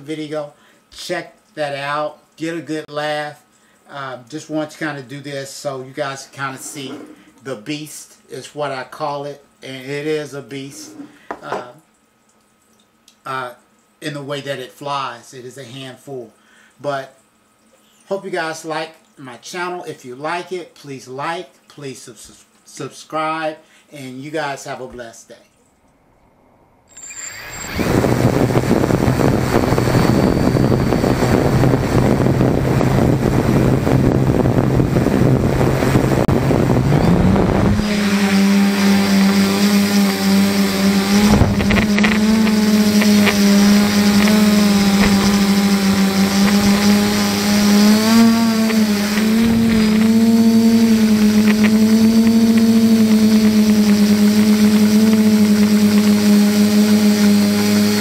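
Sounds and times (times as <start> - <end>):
drone motors and propellers: 26.9 - 58.0
vibration noise: 26.9 - 58.0.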